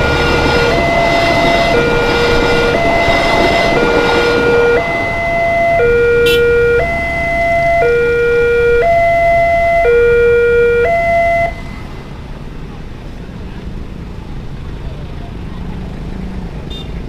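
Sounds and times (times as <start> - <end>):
two-tone level crossing alarm: 0.0 - 12.0
passing train: 0.0 - 17.0.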